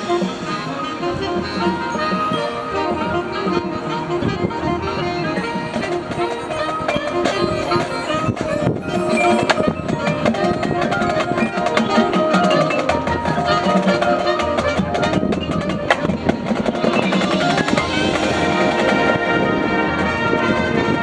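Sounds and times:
marching band playing: 0.0 - 21.0
sharp percussion strikes: 5.4 - 20.4.

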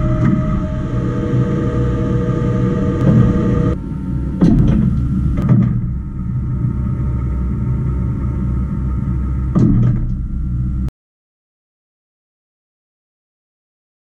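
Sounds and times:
lathe humming: 0.0 - 9.5
tool turret clunks and clicks: 4.4 - 5.9.

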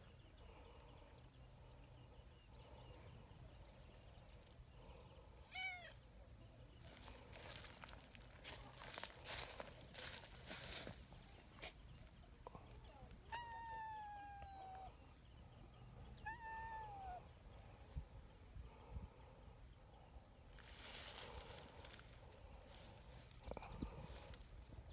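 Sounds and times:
cat meowing: 5.5 - 6.0, 13.3 - 14.9, 16.2 - 17.2.

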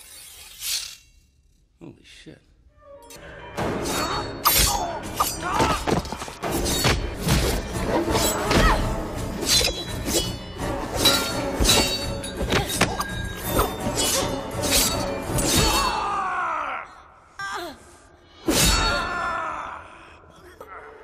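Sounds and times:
dramatic film score: 1.8 - 21.0
metal claws clashing: 3.8 - 16.2.

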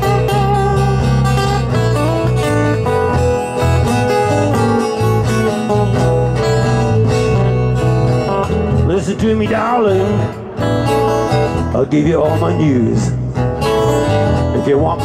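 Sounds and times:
acoustic guitars: 0.0 - 15.0
bass guitar line: 0.0 - 15.0
person singing: 8.8 - 10.4.

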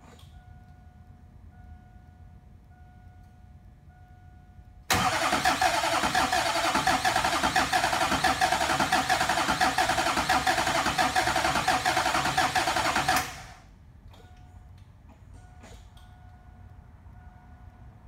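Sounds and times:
diesel engine starter cranking: 4.9 - 13.7.

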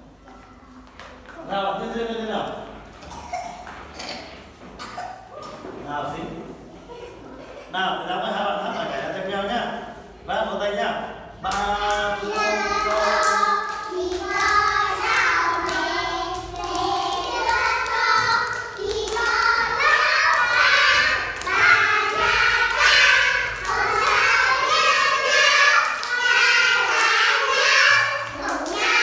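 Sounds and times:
hand clapping: 11.5 - 27.2
children singing: 11.5 - 29.0.

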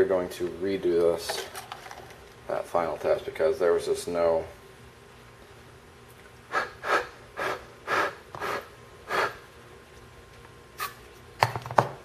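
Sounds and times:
hissing puffs of breath: 6.5 - 9.4.

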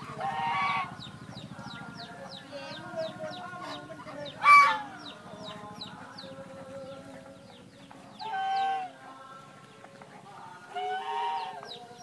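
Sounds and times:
loud harsh poultry call: 0.0 - 1.3, 3.3 - 5.2, 8.2 - 9.1, 10.6 - 12.0.

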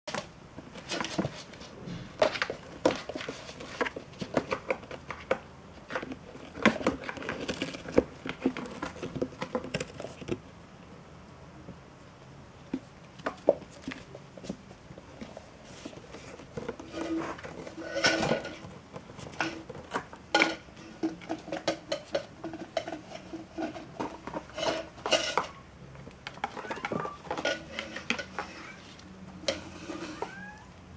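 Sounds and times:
kittens scrambling in cardboard box: 0.1 - 10.4, 13.1 - 30.8.

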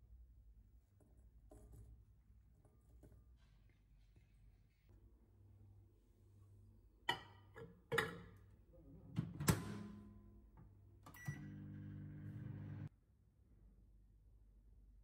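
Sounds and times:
microwave beep: 11.1 - 12.9
microwave humming: 11.1 - 12.9.

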